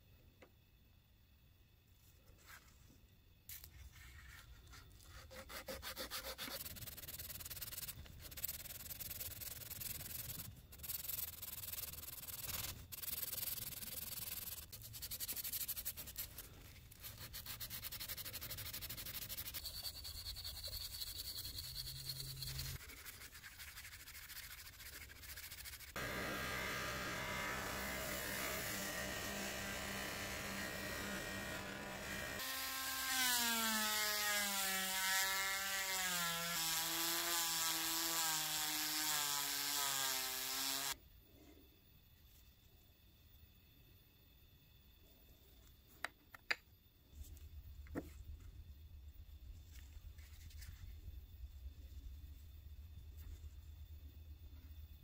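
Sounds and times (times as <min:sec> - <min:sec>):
sanding scratches on metal: 0:05.1 - 0:26.0
buffing wheel running: 0:26.0 - 0:32.4.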